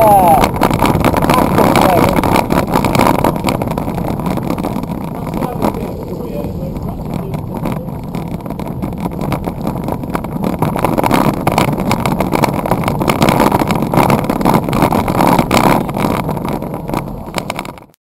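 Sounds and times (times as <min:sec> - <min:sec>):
road noise: 0:00.0 - 0:18.0
rushing wind: 0:00.0 - 0:18.0.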